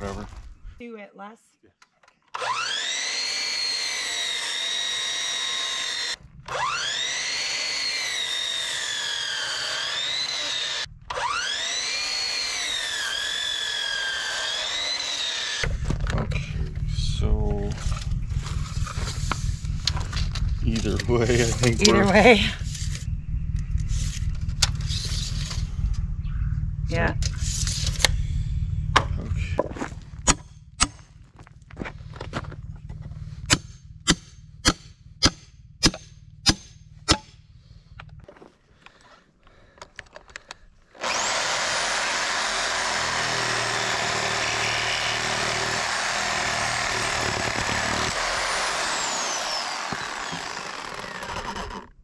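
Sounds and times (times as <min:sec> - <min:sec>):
power saw cutting board: 0:02.4 - 0:15.9, 0:41.0 - 0:52.0.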